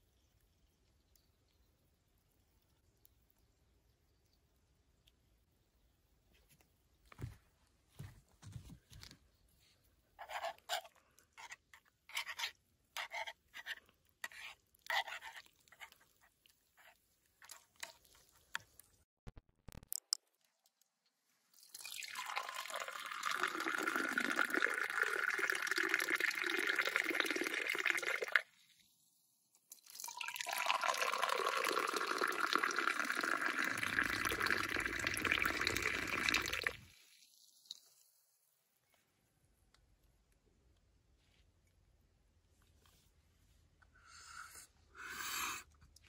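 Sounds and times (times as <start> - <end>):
tea pouring into glass: 21.6 - 28.4, 29.7 - 37.8.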